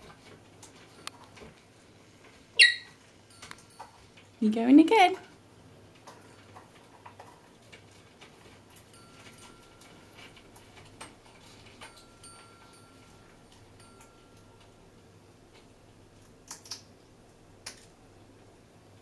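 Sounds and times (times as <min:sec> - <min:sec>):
parrot high tone: 0:02.6 - 0:03.0
parrot beak clicking: 0:16.4 - 0:16.9.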